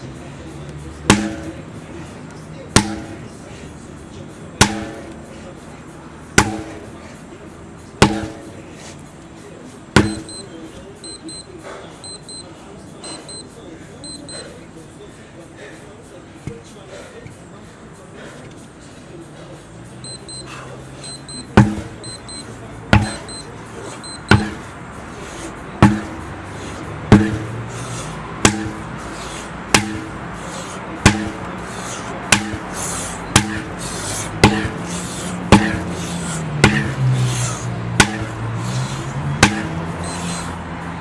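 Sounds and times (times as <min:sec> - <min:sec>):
sledgehammer strikes: 0:01.0 - 0:01.6, 0:02.7 - 0:03.2, 0:04.6 - 0:05.2, 0:06.3 - 0:07.0, 0:08.0 - 0:08.6, 0:09.9 - 0:10.4, 0:21.5 - 0:22.2, 0:22.9 - 0:23.4, 0:24.0 - 0:24.7, 0:25.8 - 0:26.2, 0:27.0 - 0:27.6, 0:28.4 - 0:28.9, 0:29.7 - 0:30.2, 0:31.0 - 0:31.5, 0:32.2 - 0:33.7, 0:34.3 - 0:34.8, 0:35.4 - 0:37.3, 0:37.9 - 0:38.7, 0:39.4 - 0:40.3.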